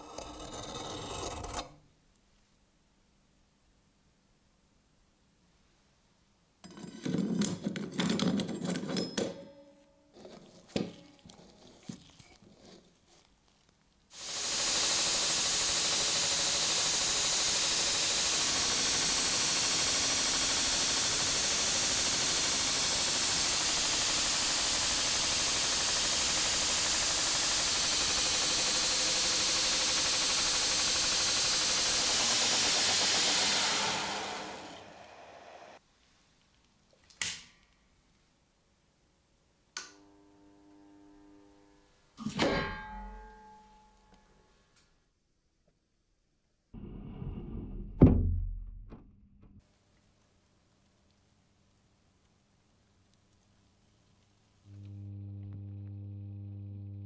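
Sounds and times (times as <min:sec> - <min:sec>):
irregular scraping: 0:09.8 - 0:13.8
belt grinder grinding steel: 0:14.2 - 0:35.8.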